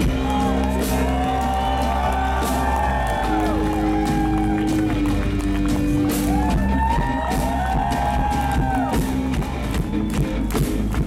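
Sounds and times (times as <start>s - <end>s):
electronic hip-hop music: 0.0s - 11.0s.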